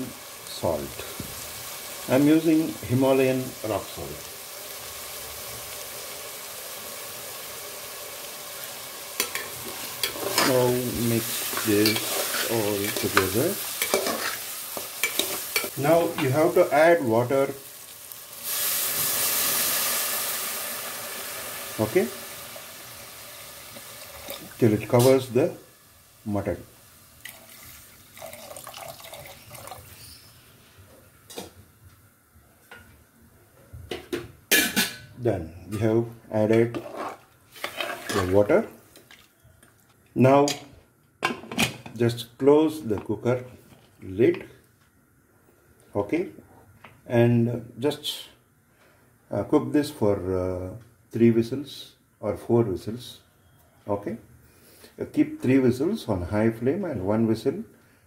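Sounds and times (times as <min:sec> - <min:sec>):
meat and onions sizzling in oil: 0:00.0 - 0:28.6, 0:36.7 - 0:39.1.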